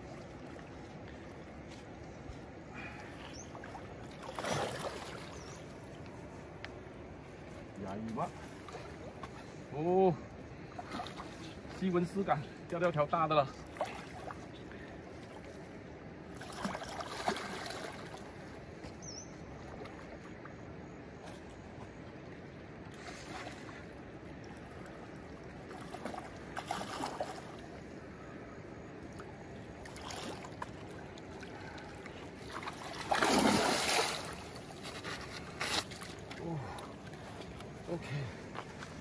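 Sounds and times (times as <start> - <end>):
river water rushing: 28.8 - 39.0
fish splashing at surface: 32.5 - 34.4.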